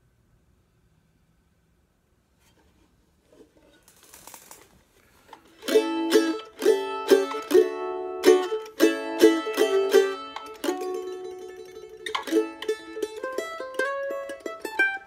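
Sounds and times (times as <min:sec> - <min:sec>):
faint scratchy noise: 0:00.0 - 0:05.7
mandolin strummed in chords: 0:05.5 - 0:15.0.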